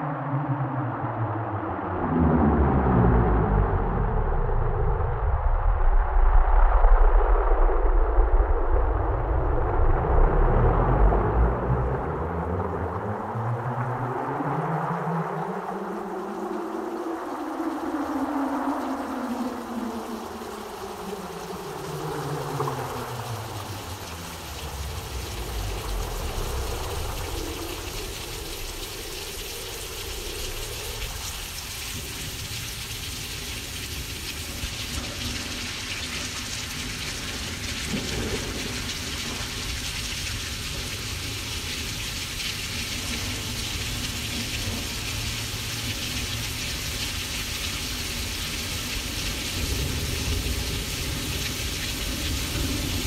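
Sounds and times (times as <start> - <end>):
rain-like hiss: 3.1 - 53.0
low thunder rumble: 22.0 - 32.9.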